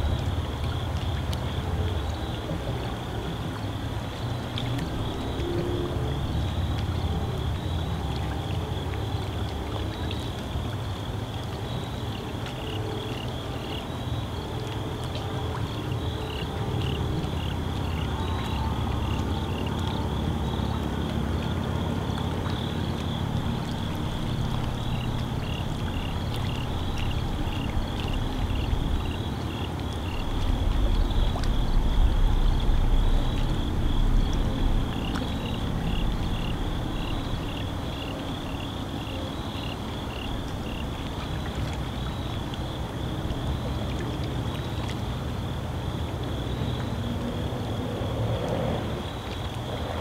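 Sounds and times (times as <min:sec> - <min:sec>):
low rumble: 0:22.4 - 0:39.0.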